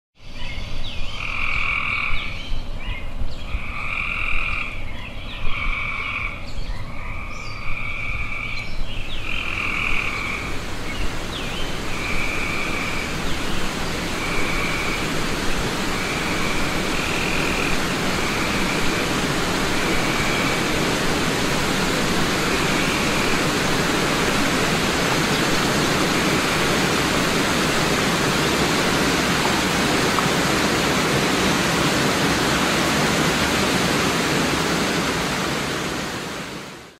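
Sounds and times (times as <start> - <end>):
frogs trilling: 3.6 - 4.8, 9.2 - 30.8
water rushing over rapids: 9.1 - 36.9.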